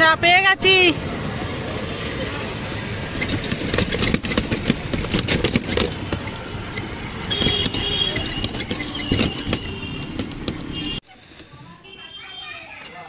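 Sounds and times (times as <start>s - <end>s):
traffic noise: 0.0s - 13.0s
rickshaw rattling over road: 0.8s - 11.0s.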